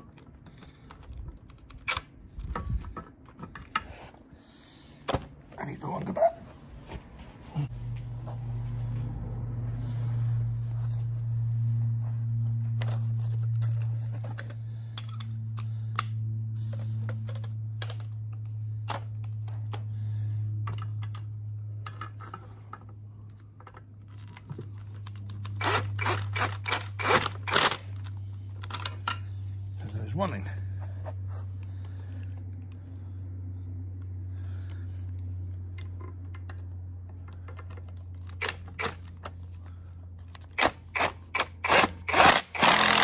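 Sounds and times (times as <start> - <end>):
steady low hum: 0.0 - 43.0
cordless power tool bursts: 40.6 - 43.0.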